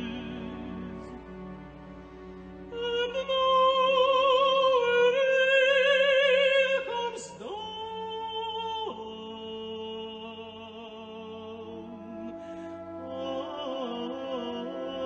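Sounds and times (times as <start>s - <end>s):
woman singing opera: 0.0s - 1.1s, 2.7s - 15.0s.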